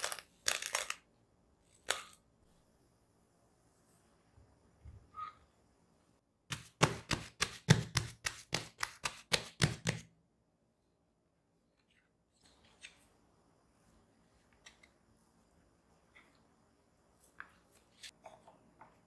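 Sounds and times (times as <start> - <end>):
hands slapping dough: 6.5 - 10.1.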